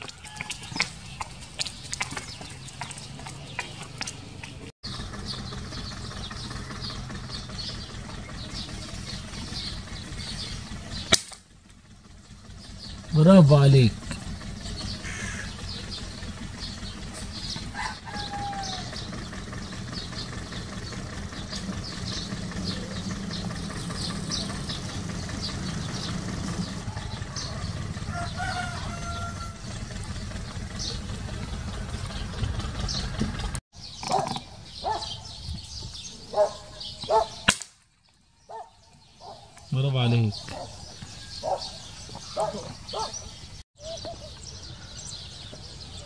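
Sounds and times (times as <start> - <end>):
small birds chirping: 0.0 - 46.0
rooster crowing: 17.7 - 19.0, 26.9 - 29.8.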